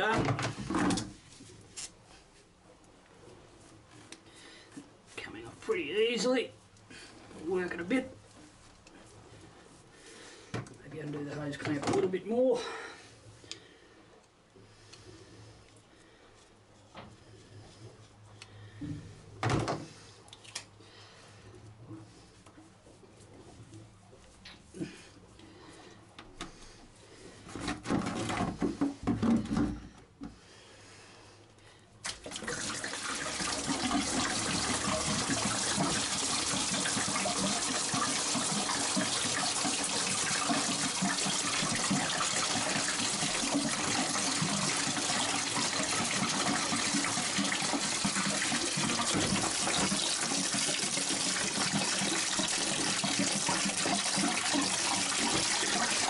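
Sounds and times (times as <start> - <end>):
coolant gushing into plastic bucket: 27.4 - 29.6, 32.0 - 56.0
knocks and handling noise: 27.5 - 30.4.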